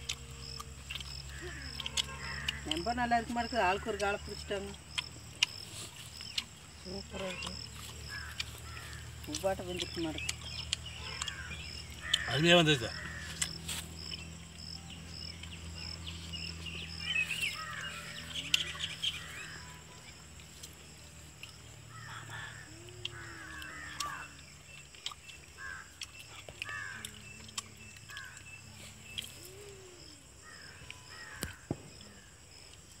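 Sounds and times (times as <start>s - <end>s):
high-pitched insect trill: 0.0s - 33.0s
crows cawing: 1.3s - 2.9s, 8.1s - 9.4s, 10.9s - 13.5s, 17.4s - 19.8s, 21.9s - 24.4s, 25.6s - 27.2s, 28.1s - 28.5s, 30.4s - 32.2s.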